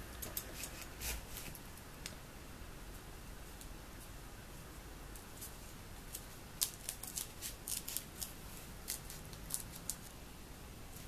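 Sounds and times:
scissors snipping foam: 0:06.1 - 0:10.0.

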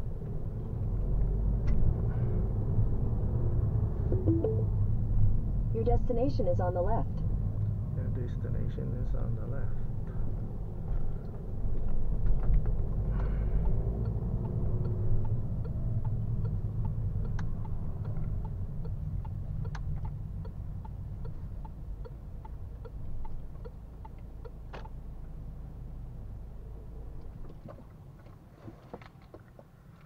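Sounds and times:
diesel engine rumble: 0:00.0 - 0:29.9
turn signal ticking: 0:11.3 - 0:25.1.

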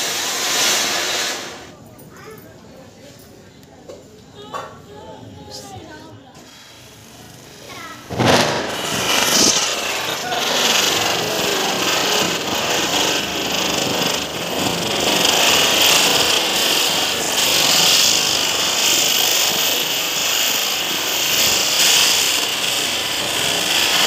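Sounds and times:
spinner firework hissing: 0:00.0 - 0:01.8, 0:05.4 - 0:24.0.

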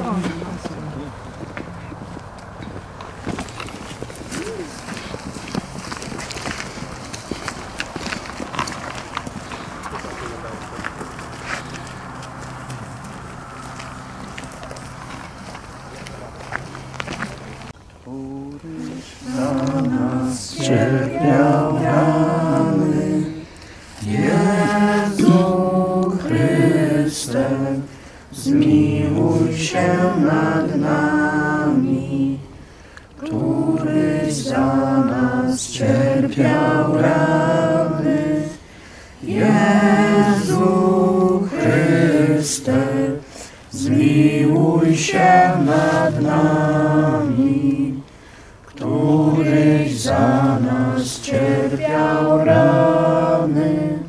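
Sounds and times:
group singing a religious song: 0:18.6 - 0:54.0.

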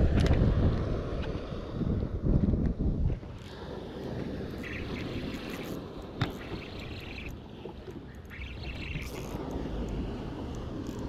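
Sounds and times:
wind buffeting microphone: 0:00.0 - 0:11.0
sea washing on rocky shore: 0:03.3 - 0:11.0.

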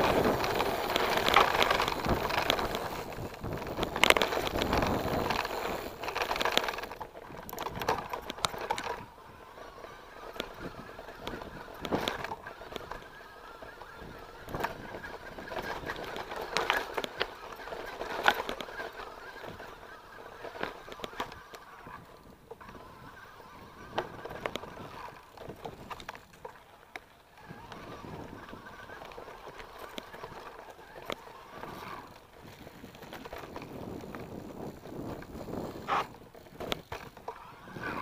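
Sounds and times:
bike rattling on rough trail: 0:00.0 - 0:38.0.

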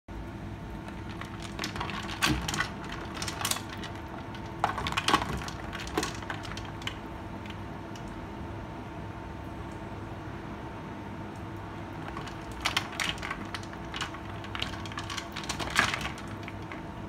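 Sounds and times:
ice clattering in a bowl: 0:00.8 - 0:07.6, 0:12.0 - 0:16.8.

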